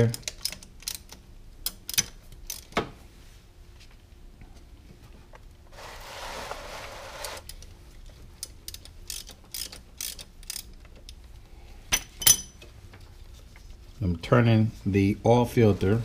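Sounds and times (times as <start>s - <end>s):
hand ratchet clicking: 0.0s - 2.7s, 8.4s - 11.2s
sharp metal clicks: 0.0s - 2.8s, 8.4s - 11.2s.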